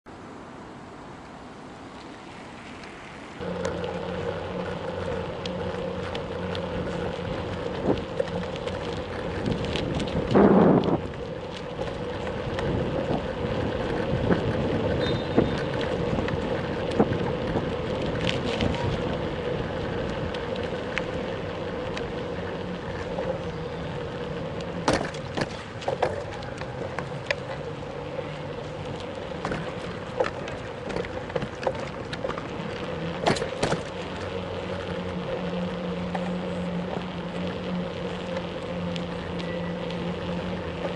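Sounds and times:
bicycle tyres and wind hum: 0.1 - 40.9
clicks and rattles over bumps: 3.4 - 40.9.

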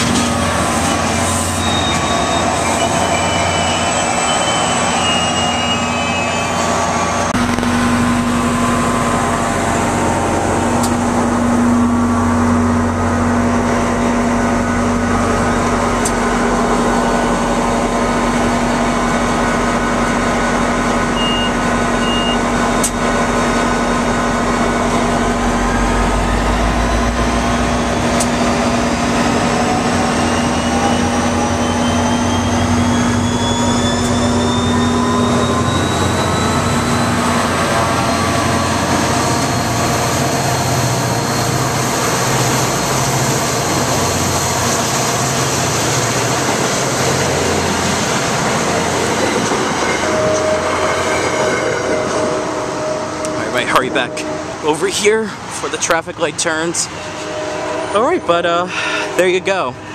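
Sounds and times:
diesel locomotive engine drone: 0.0 - 59.9
train coaches rolling past: 0.0 - 59.9
whine rising in pitch: 0.4 - 55.0.

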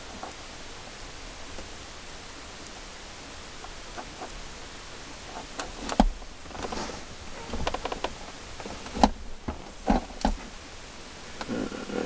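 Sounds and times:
sharp clicks and knocks: 5.3 - 6.8, 7.4 - 10.5.

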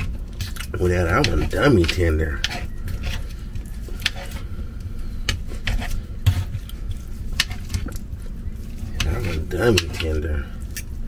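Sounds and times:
knife and fork scraping plate: 0.4 - 4.5, 5.3 - 6.6, 8.9 - 10.2.

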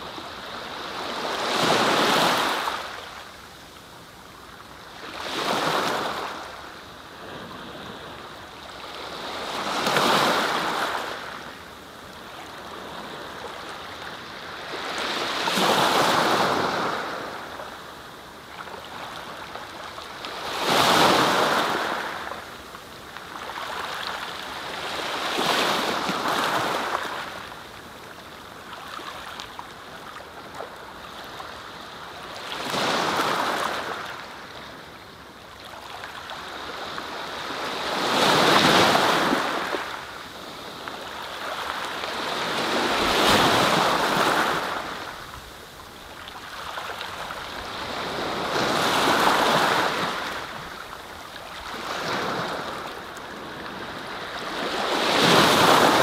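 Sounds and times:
sea waves washing up beach: 36.4 - 56.0.

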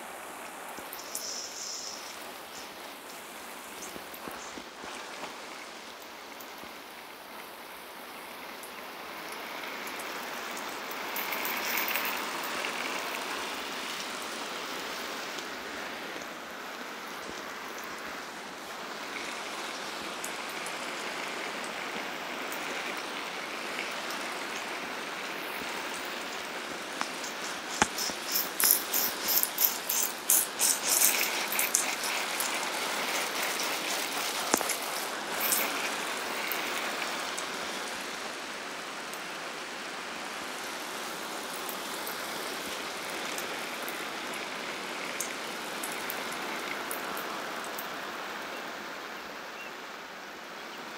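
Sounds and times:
hose water spattering: 22.4 - 37.6.

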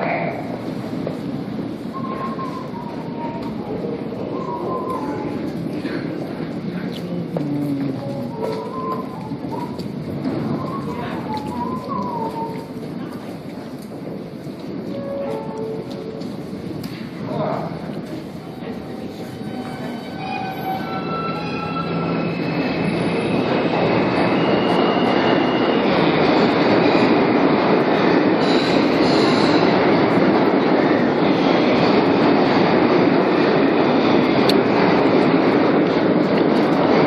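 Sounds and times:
subway train rumbling on rails: 0.0 - 37.0
wheel squeal: 19.6 - 26.0.

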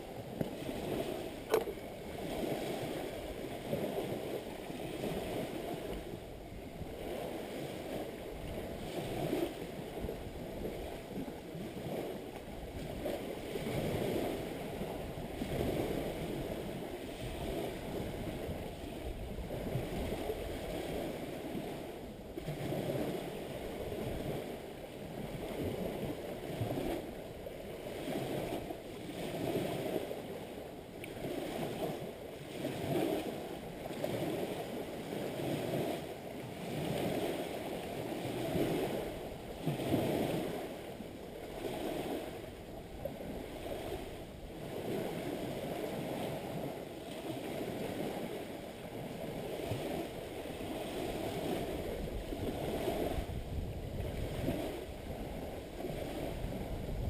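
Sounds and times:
lake waves washing against shore: 0.0 - 57.0.

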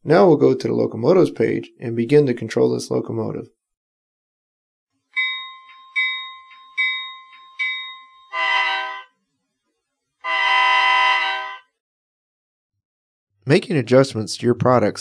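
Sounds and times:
locomotive bell ringing: 5.2 - 9.1, 10.3 - 11.7
locomotive horn blasts: 8.3 - 9.1, 10.2 - 11.7.

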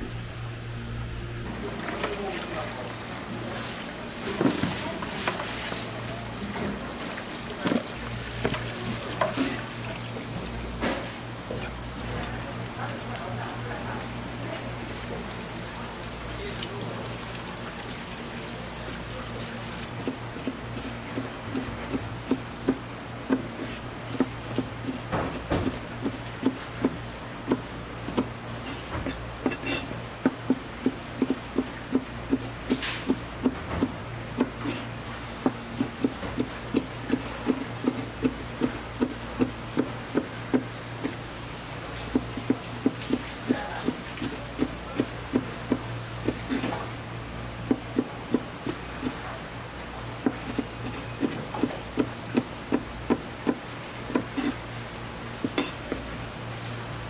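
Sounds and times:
steady low hum: 0.0 - 4.2.

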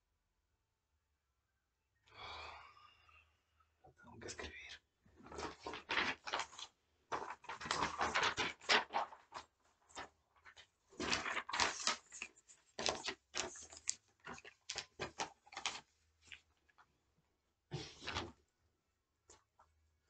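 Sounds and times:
paper rustling and flapping: 5.2 - 16.9, 17.8 - 18.4.

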